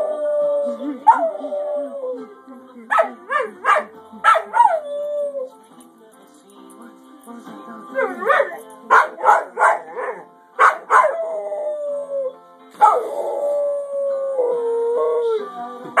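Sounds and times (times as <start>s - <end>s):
music: 0.0s - 16.0s
dog yipping and barking: 2.9s - 4.8s, 8.1s - 11.2s
dog howling: 10.8s - 15.6s.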